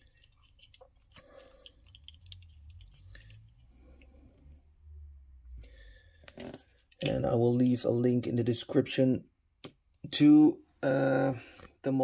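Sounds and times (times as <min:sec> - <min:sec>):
toy cars clicking in fingers: 0:00.0 - 0:04.1.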